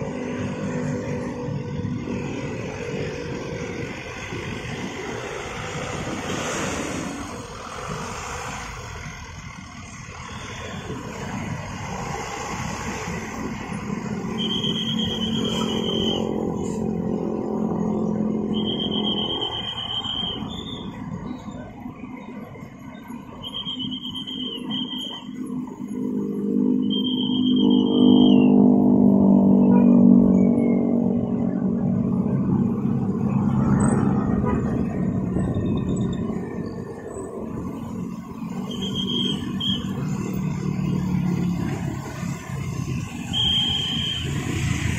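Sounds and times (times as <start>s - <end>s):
motorcycles passing: 0.0s - 44.9s
scooters and car driving past: 24.3s - 44.9s.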